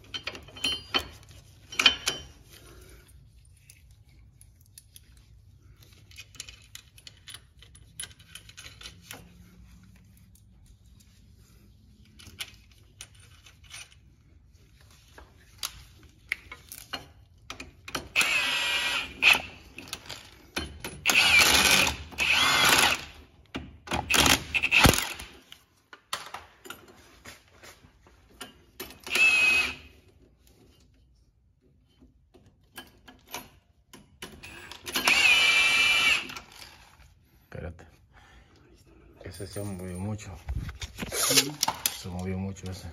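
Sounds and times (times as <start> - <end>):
metal parts clinking: 5.9 - 9.3.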